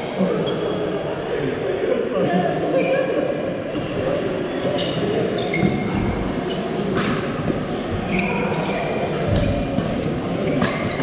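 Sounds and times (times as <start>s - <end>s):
court shoes squeaking: 0.3s - 0.8s, 4.6s - 11.0s
rackets hitting shuttlecocks: 6.9s - 7.7s.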